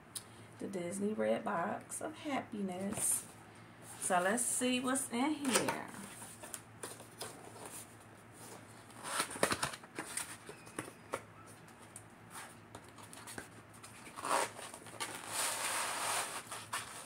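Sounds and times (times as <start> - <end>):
packing insert scraping out of box: 8.9 - 11.2, 12.4 - 17.0.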